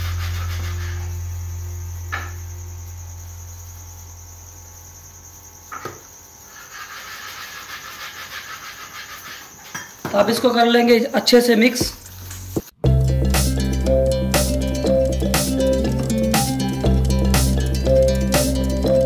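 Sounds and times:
high-pitched whine: 0.0 - 5.1
background music: 12.8 - 19.0.

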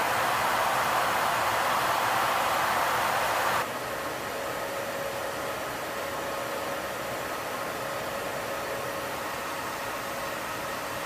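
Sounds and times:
jet engines and airflow rushing: 0.0 - 4.2
faint steady whine: 0.0 - 11.0.

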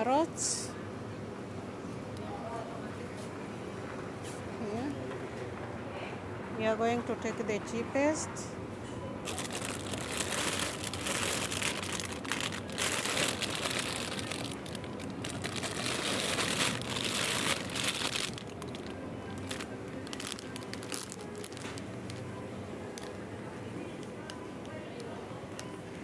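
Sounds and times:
plastic bag crinkling: 9.2 - 22.2.

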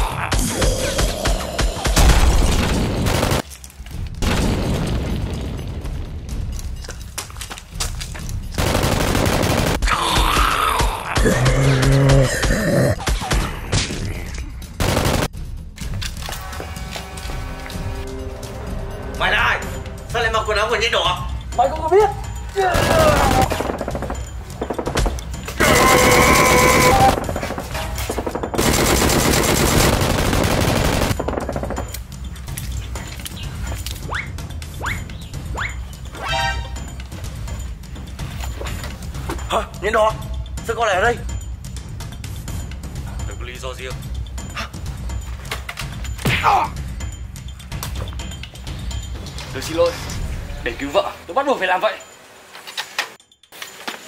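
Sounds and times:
automatic gunfire: 8.6 - 9.9, 14.8 - 15.3, 28.6 - 31.6.

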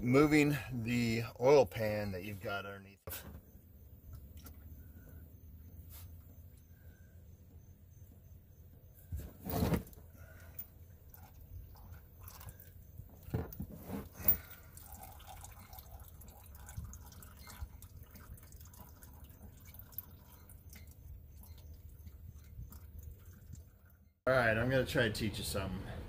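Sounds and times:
oil trickling into drain pan: 14.2 - 24.1.

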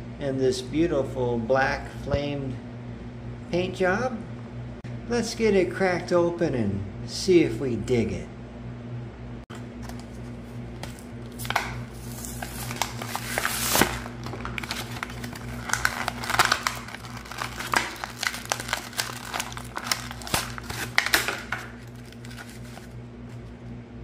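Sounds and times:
plastic blister crinkling: 9.6 - 23.5
cardboard packaging tearing: 10.8 - 23.0.

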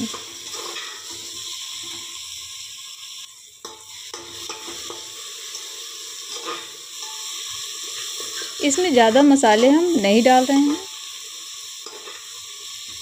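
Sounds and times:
leaves frying in oil: 0.0 - 13.0
metal spatula scraping pot: 0.2 - 2.0, 3.7 - 9.7, 11.8 - 12.4.

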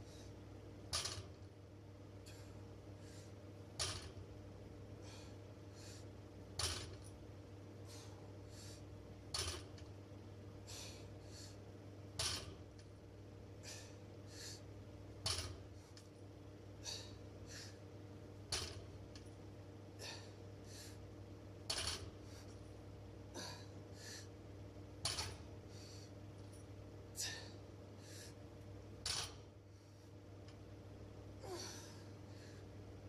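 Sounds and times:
barbell plates clinking on floor: 6.6 - 7.1
person breathing: 13.6 - 14.7.

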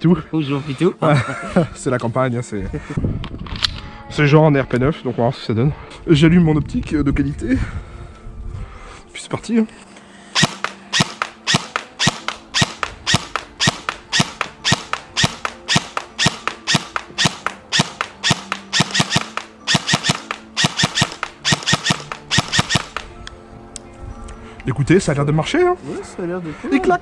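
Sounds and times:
airsoft gun shots: 10.4 - 23.1.

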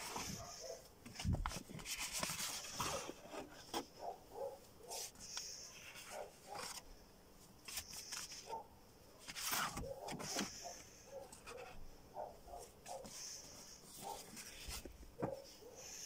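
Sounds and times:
paper rustling and sliding: 0.0 - 3.9, 4.9 - 6.9, 7.6 - 8.6, 9.2 - 11.8, 12.8 - 15.0.

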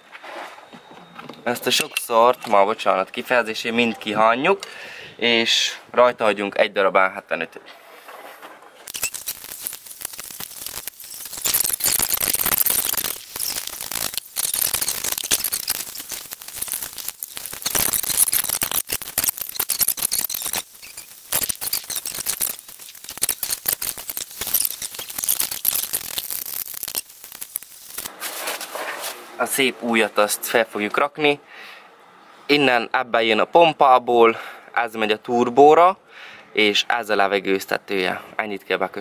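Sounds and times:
plastic rustling and scraping: 7.7 - 29.4.

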